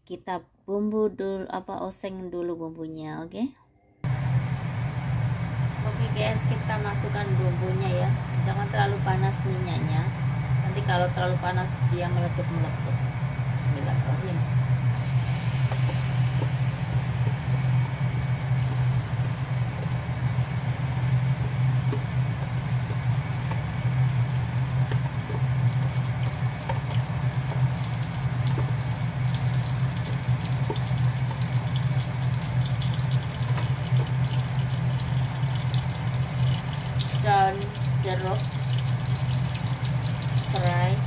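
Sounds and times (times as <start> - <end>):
washing machine running: 4.0 - 41.0
spice paste sizzling in oil: 14.0 - 41.0.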